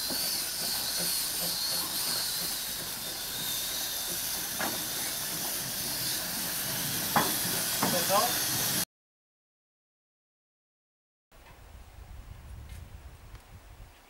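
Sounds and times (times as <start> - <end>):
steam hissing: 0.0 - 8.8.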